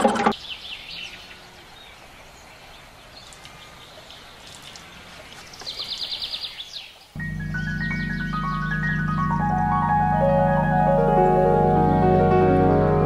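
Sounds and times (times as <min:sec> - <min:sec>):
birds chirping: 0:00.0 - 0:13.0
bird trill: 0:07.3 - 0:09.8.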